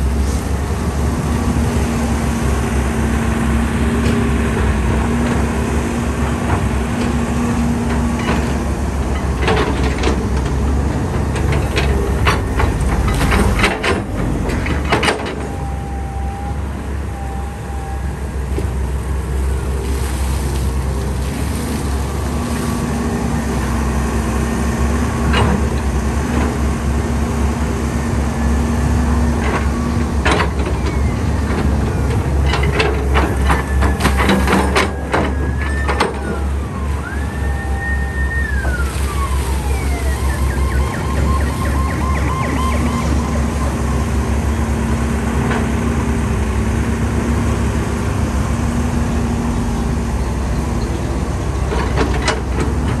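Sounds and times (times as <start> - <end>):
excavator diesel engine running: 0.0 - 53.0
high whine gliding down: 36.9 - 44.1.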